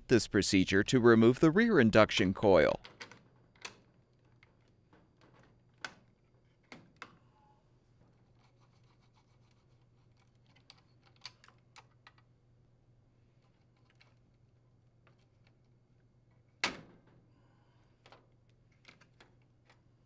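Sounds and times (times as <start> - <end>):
faint clicks and scrapes: 8.0 - 12.3, 13.3 - 15.8.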